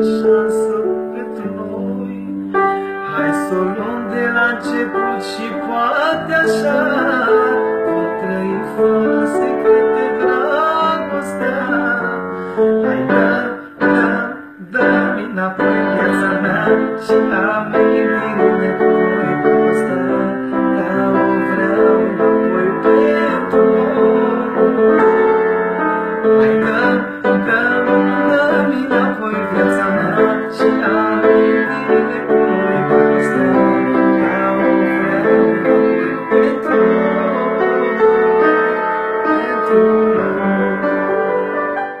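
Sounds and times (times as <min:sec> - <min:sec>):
solo piano melody with chords: 0:00.0 - 0:42.0.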